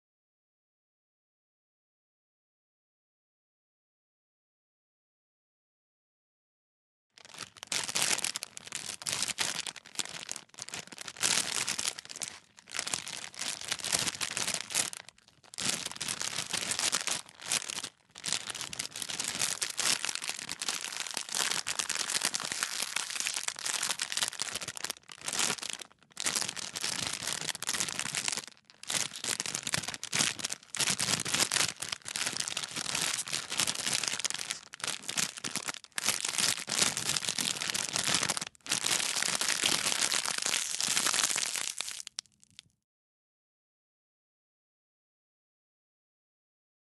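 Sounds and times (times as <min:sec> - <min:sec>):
plastic wrapper crinkling: 0:07.2 - 0:42.6.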